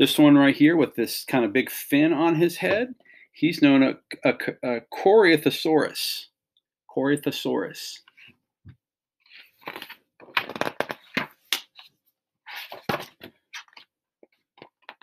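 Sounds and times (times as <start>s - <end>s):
book pages rustling: 9.3s - 15.0s.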